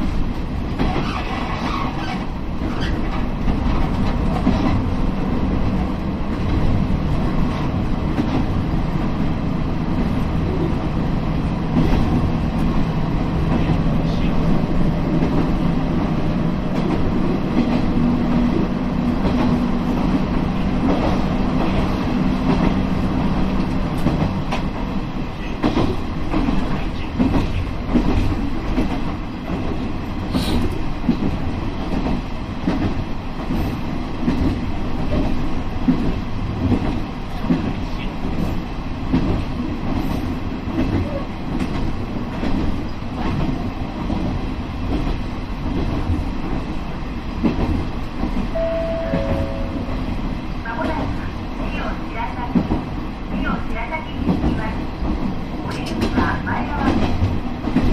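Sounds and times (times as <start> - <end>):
train wheels clattering over rails: 0.0 - 48.5, 54.2 - 57.9.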